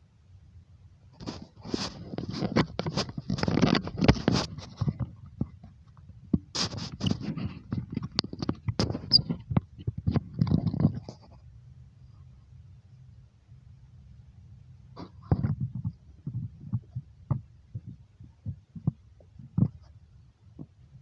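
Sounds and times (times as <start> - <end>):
sharp clicks and knocks: 1.2 - 11.4.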